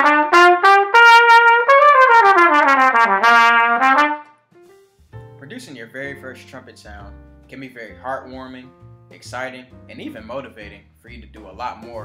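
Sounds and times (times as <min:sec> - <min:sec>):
solo trumpet melody: 0:00.0 - 0:04.5.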